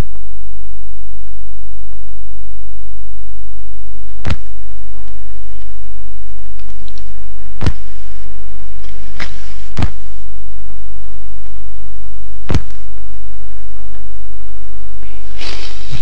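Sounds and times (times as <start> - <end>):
low electrical hum: 0.0 - 16.0
sharp pops: 4.2 - 4.6, 7.6 - 8.0, 8.9 - 10.1, 12.4 - 12.9
even hiss: 6.8 - 10.2, 15.0 - 16.0.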